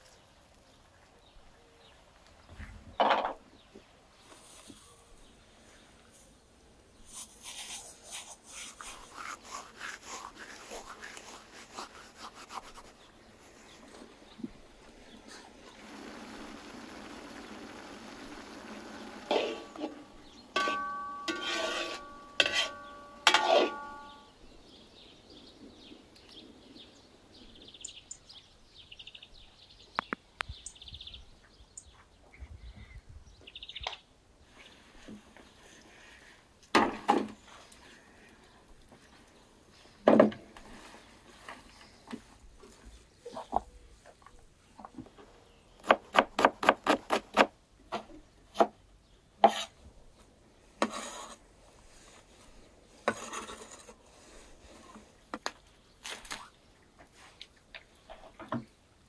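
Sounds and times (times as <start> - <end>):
steaming pot hissing: 15.7 - 19.9
metal skimmer clanking on pot: 20.6 - 24.2
faint bird chirps: 22.0 - 34.9.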